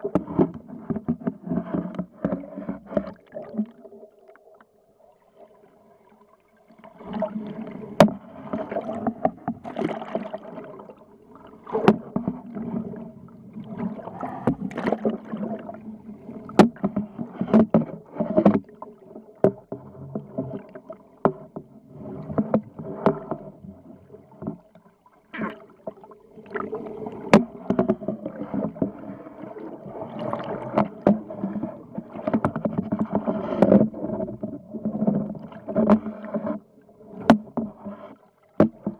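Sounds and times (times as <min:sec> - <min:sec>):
low engine hum underwater: 0:00.0 - 0:38.9
water rushing underwater: 0:02.2 - 0:38.1.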